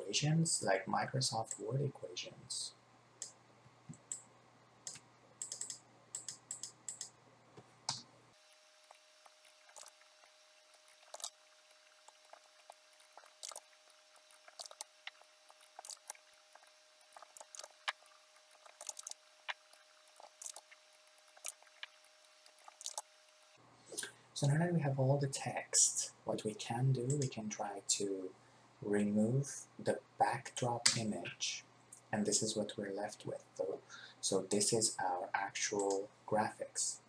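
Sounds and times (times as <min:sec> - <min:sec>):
mouse and keyboard clicks: 0:04.9 - 0:07.2, 0:18.6 - 0:19.6.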